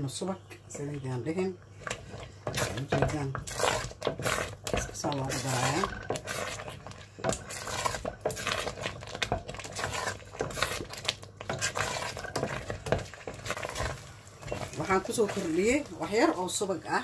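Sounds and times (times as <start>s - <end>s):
wooden spoon scraping metal pot: 0.8s - 17.0s.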